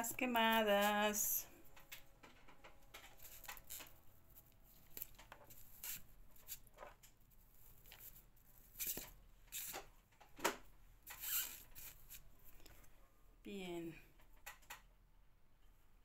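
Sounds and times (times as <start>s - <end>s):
faint rustles and soft taps: 0.4s - 13.0s.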